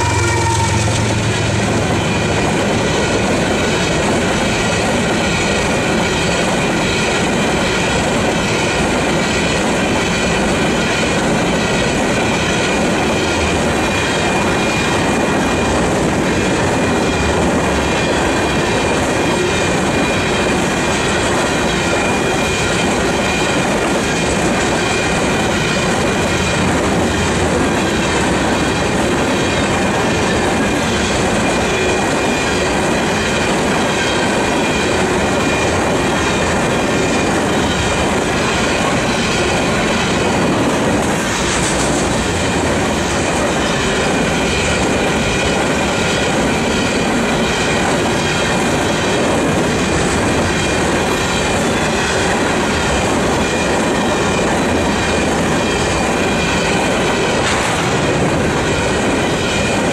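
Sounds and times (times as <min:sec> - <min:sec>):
high-pitched wheel squeal: 0:00.0 - 0:02.4
freight cars rumbling on rails: 0:00.0 - 0:59.9.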